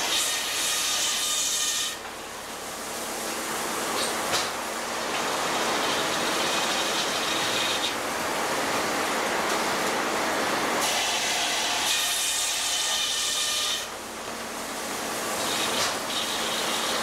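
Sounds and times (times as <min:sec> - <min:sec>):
circular saw cutting log: 0:00.0 - 0:02.1, 0:05.1 - 0:08.0, 0:10.8 - 0:14.0, 0:15.2 - 0:17.0.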